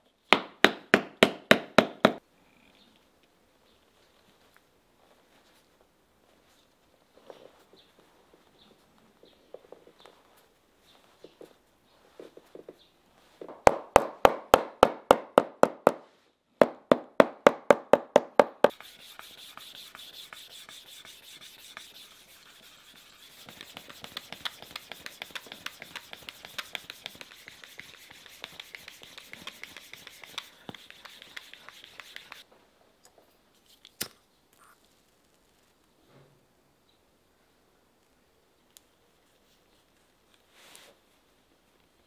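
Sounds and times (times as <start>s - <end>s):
tool striking leather sole: 0.3s - 2.2s, 13.5s - 16.0s, 16.6s - 20.4s
stick rubbing leather: 18.6s - 32.4s.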